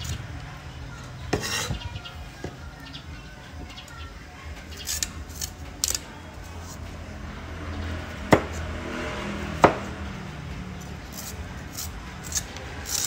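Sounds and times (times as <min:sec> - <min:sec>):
blade scraping through rind: 0:01.3 - 0:01.8, 0:04.7 - 0:06.8, 0:10.9 - 0:13.0.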